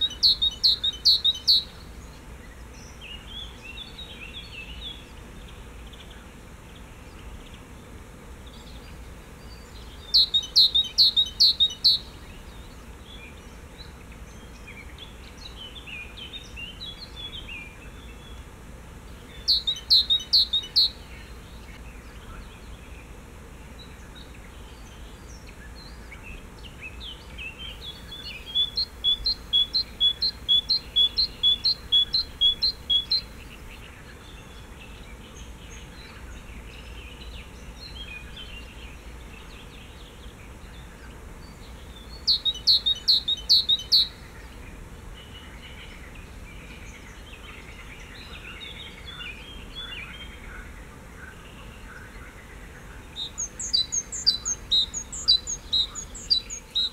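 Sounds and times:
songbird singing high notes: 0.0s - 1.7s, 10.0s - 12.1s, 19.4s - 21.0s, 27.7s - 33.4s, 42.2s - 44.2s
soft bird twittering: 0.0s - 6.2s, 8.4s - 18.4s, 19.1s - 23.1s, 23.8s - 56.9s.

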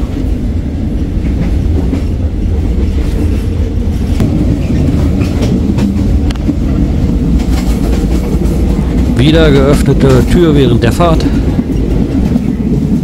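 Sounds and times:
train rumble: 0.0s - 13.0s
track clicks and knocks: 1.2s - 10.8s.

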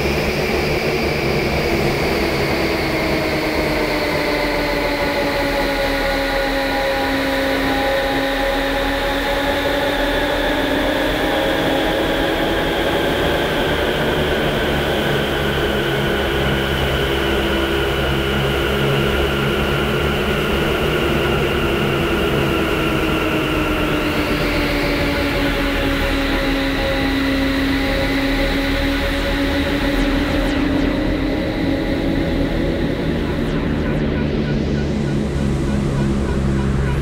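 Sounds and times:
synthesizer drone: 0.0s - 37.0s
steady low hum: 10.5s - 37.0s.

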